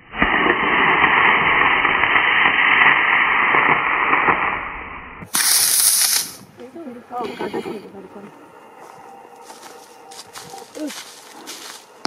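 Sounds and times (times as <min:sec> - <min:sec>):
brief higher hiss: 0:05.2 - 0:06.5
rocket motor rushing hiss: 0:05.2 - 0:06.6.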